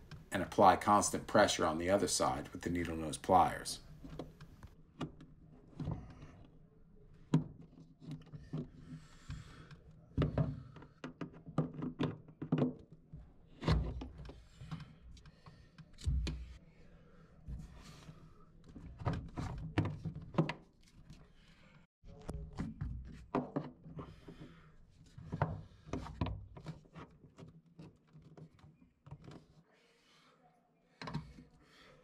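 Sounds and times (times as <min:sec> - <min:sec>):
tools knocking and scraping plastic: 0:10.1 - 0:16.5, 0:18.6 - 0:21.2, 0:22.2 - 0:29.6.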